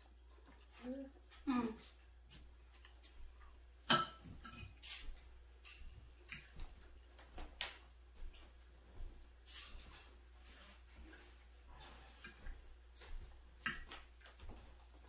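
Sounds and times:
fork scraping a plate: 9.5s - 12.5s.

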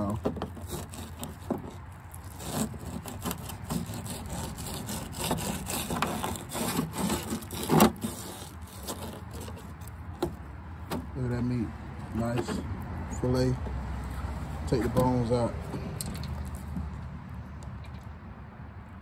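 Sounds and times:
knife scraping on plastic board: 0.0s - 11.0s.

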